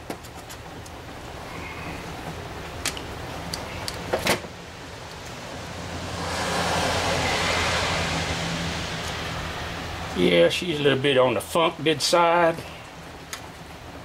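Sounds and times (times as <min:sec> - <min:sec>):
steady low hum: 0:00.0 - 0:14.0
loud rushing noise: 0:04.5 - 0:11.0.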